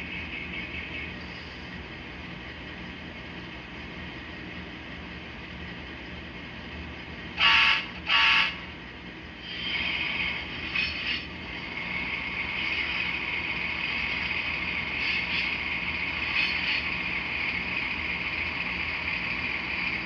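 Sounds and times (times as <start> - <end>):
turbine whine: 0.0 - 20.0
locomotive horn blasts: 7.4 - 8.7.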